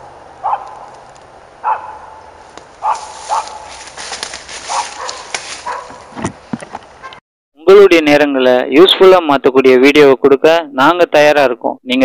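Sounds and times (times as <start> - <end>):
dog barking: 0.4 - 0.8, 1.6 - 2.2, 2.8 - 3.8, 4.6 - 6.2.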